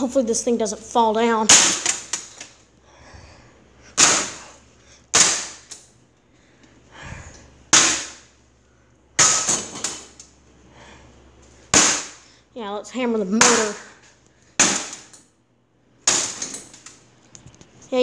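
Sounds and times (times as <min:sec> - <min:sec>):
hammer striking plastic fan: 0:05.1 - 0:05.8, 0:07.7 - 0:08.3, 0:11.7 - 0:12.2, 0:14.6 - 0:15.2.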